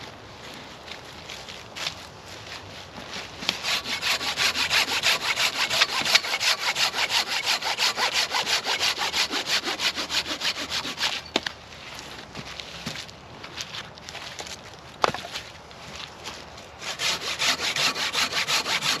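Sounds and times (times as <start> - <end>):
hand saw cutting wood: 3.4 - 11.3, 16.8 - 19.0.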